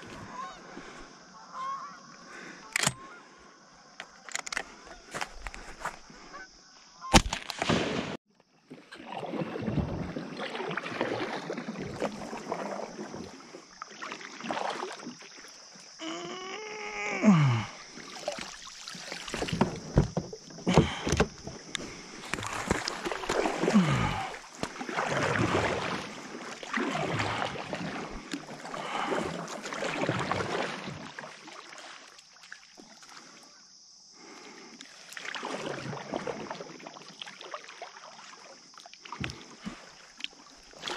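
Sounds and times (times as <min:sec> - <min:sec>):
kayak paddle splashing: 0:00.0 - 0:40.9.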